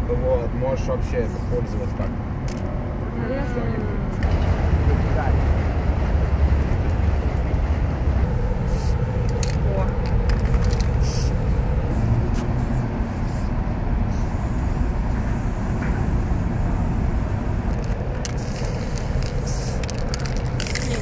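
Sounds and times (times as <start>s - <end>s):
steady low rumble: 0.0s - 21.0s
aerosol spray can hissing: 10.5s - 11.6s, 14.1s - 21.0s.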